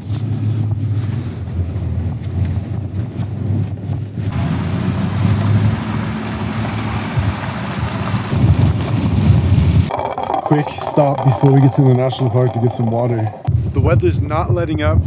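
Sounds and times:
truck engine and road rumble: 0.0s - 10.0s
wind and tyres rushing: 0.0s - 10.1s.

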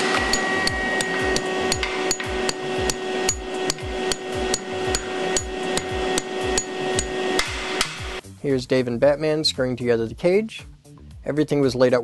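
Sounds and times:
hammer striking metal anchor: 0.0s - 8.1s
steady hum: 0.0s - 8.2s.

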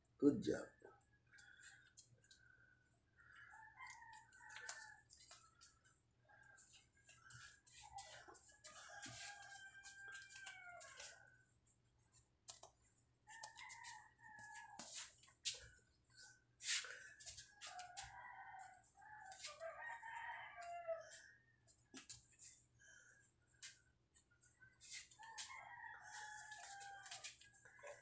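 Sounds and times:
roosters crowing: 8.1s - 11.2s, 17.6s - 21.2s.

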